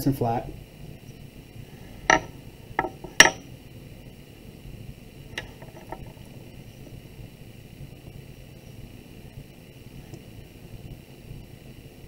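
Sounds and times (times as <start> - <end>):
clay knocking on wooden board: 2.1 - 3.4.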